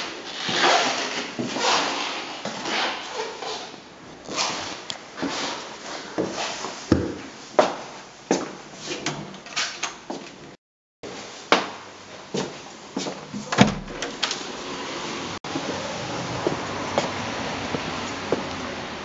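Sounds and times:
wooden door opening and closing: 13.4s - 14.4s
outdoor street ambience hiss: 14.2s - 19.0s.

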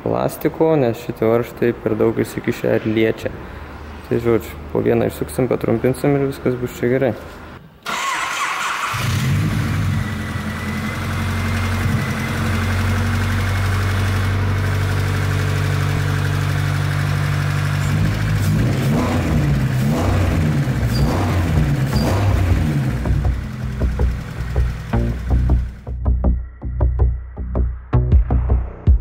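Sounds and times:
car engine idling and revving: 8.8s - 26.0s.

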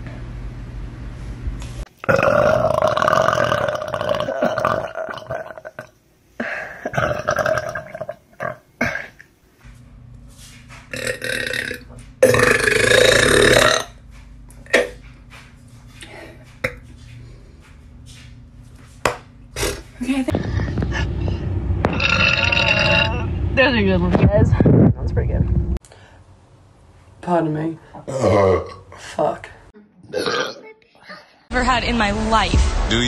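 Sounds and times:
woman belching: 2.0s - 5.9s, 6.8s - 9.2s, 11.0s - 13.9s, 21.9s - 23.3s, 28.1s - 28.9s, 30.1s - 30.6s.

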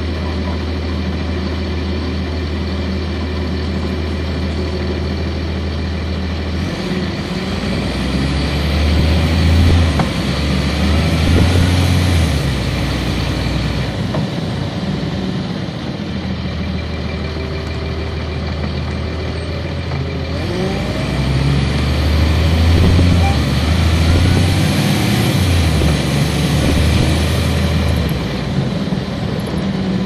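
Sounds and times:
bus diesel engine running: 0.0s - 30.0s.

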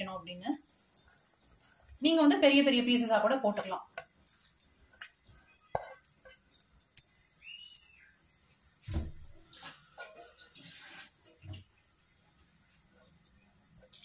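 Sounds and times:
short rising and falling chirp: 7.4s - 8.2s.

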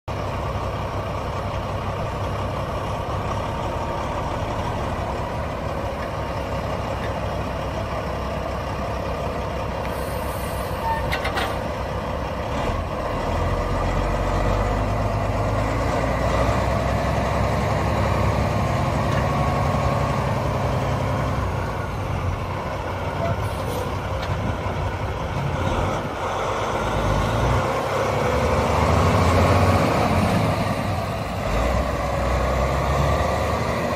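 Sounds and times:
diesel truck engine rumble: 0.0s - 33.9s
air hiss: 9.9s - 10.8s.

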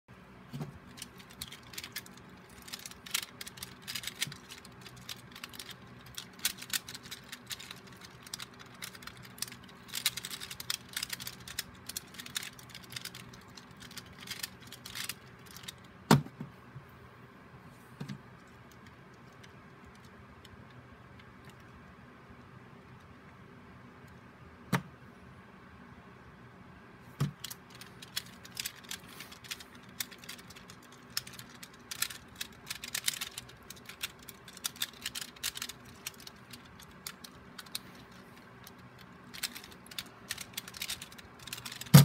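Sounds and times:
plastic puzzle clicking: 0.9s - 15.8s, 27.2s - 42.0s.

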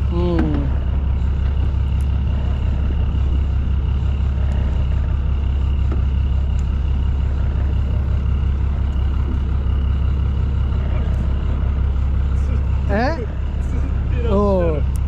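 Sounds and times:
boat engine idling: 0.0s - 15.0s.

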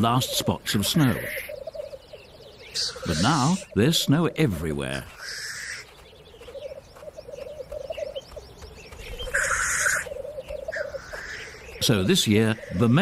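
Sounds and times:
grouse bubbling cooing song: 0.0s - 4.4s, 9.1s - 13.0s
grouse hissing call: 2.7s - 3.8s, 5.2s - 5.9s, 9.2s - 13.0s.

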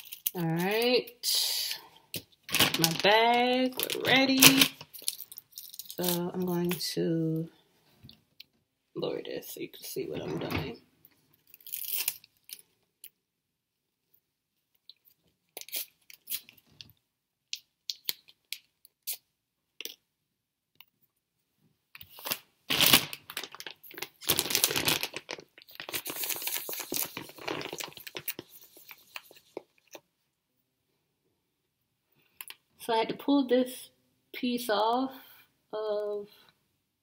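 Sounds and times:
paper packaging tearing and crinkling: 2.5s - 6.6s, 11.5s - 12.6s, 22.1s - 29.9s.

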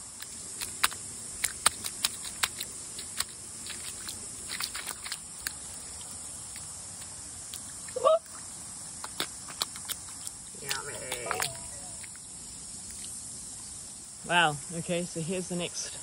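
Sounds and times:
bare feet stepping in wet mud: 0.0s - 12.2s
steady high hiss: 0.0s - 16.0s.

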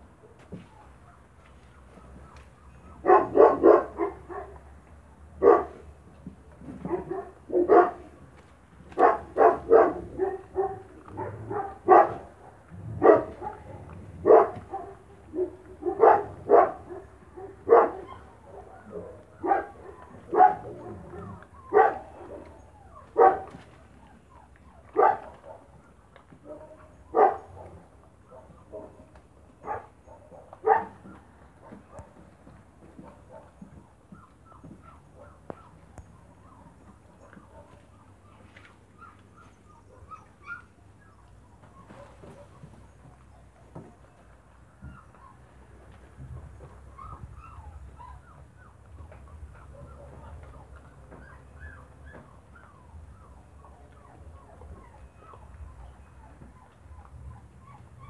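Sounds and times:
dog barking: 2.8s - 4.6s, 5.4s - 5.9s, 6.7s - 8.2s, 8.9s - 23.6s, 24.9s - 25.8s, 26.4s - 32.2s, 33.0s - 33.7s, 36.5s - 37.9s, 41.8s - 42.7s, 49.6s - 50.6s.

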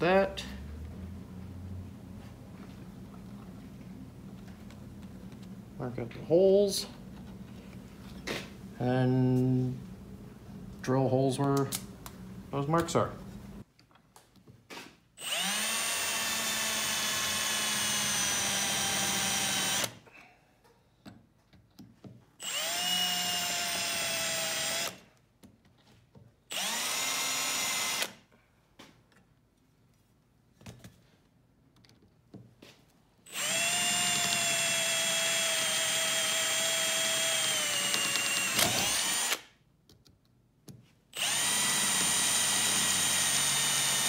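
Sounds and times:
cordless drill whining: 15.2s - 20.0s, 22.4s - 25.0s, 26.5s - 28.2s, 33.3s - 39.5s, 41.2s - 44.0s.

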